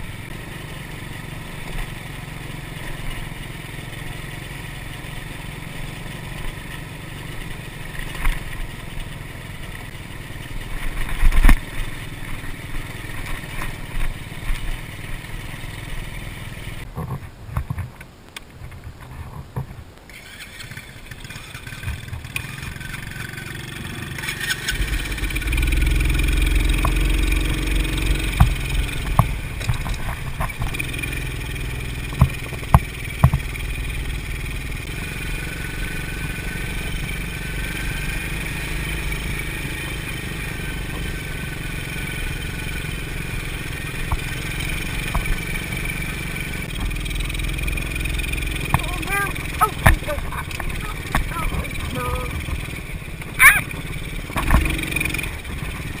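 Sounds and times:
atv engine running: 0:00.0 - 0:18.0, 0:18.7 - 0:56.0
sharp knocks from bumpy track: 0:10.8 - 0:14.8, 0:21.2 - 0:27.3, 0:28.1 - 0:33.8, 0:44.0 - 0:46.1, 0:46.7 - 0:56.0.

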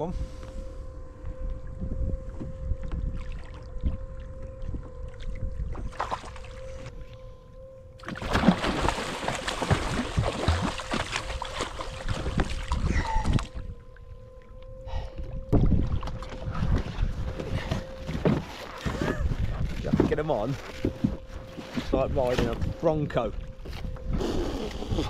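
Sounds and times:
water sloshing around kayak: 0:01.0 - 0:25.0
fish thrashing and splashing: 0:08.0 - 0:13.6.

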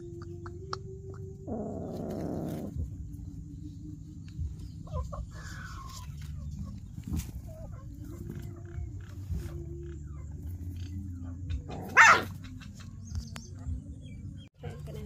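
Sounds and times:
animal calls: 0:00.0 - 0:03.0, 0:04.8 - 0:12.9.

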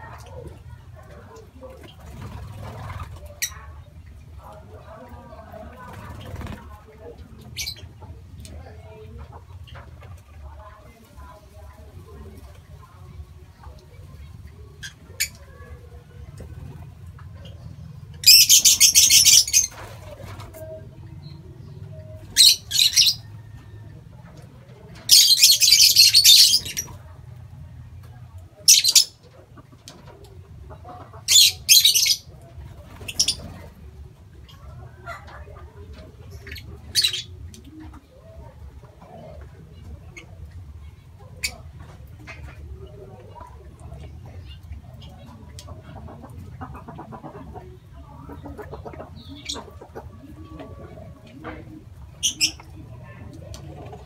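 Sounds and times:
lovebirds calling shrilly: 0:18.2 - 0:19.8, 0:22.3 - 0:23.3, 0:25.1 - 0:26.9, 0:31.3 - 0:32.3.

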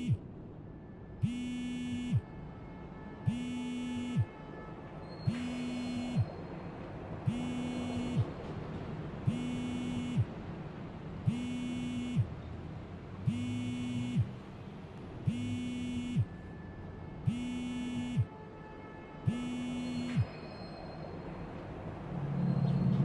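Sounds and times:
pulsing electronic buzzing tone: 0:00.0 - 0:00.2, 0:01.2 - 0:02.2, 0:03.3 - 0:04.3, 0:05.3 - 0:06.3, 0:07.3 - 0:08.3, 0:09.3 - 0:10.3, 0:11.3 - 0:12.3, 0:13.3 - 0:14.3, 0:15.3 - 0:16.3, 0:17.3 - 0:18.3, 0:19.3 - 0:20.3.

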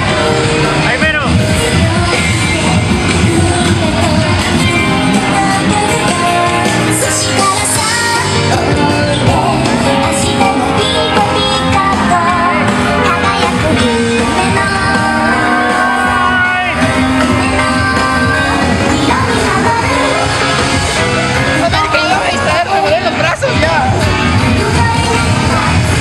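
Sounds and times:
music with singing voice: 0:00.0 - 0:26.0.

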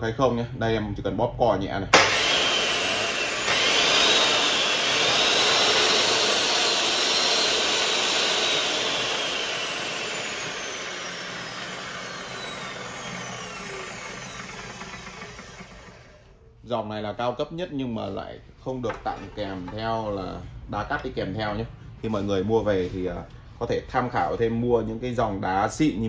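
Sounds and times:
power saw motor whining: 0:02.0 - 0:16.4.

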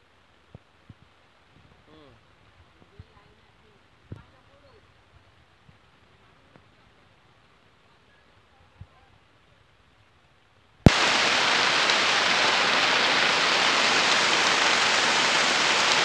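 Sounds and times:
heavy rain hissing: 0:10.8 - 0:16.0.

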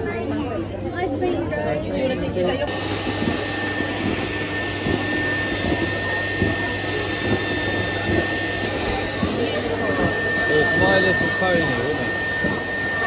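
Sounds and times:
blower rushing air with whine: 0:02.7 - 0:13.0.

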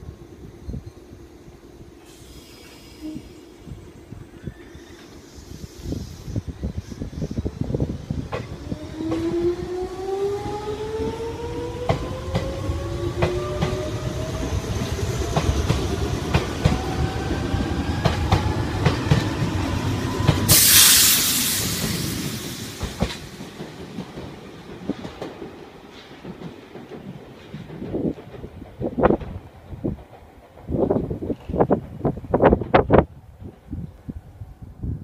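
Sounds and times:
air hiss: 0:02.0 - 0:08.0, 0:20.3 - 0:23.4.

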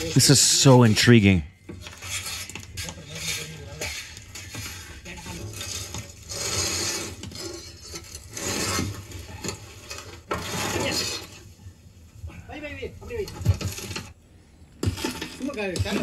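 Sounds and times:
scraping against metal pan: 0:01.8 - 0:11.4.

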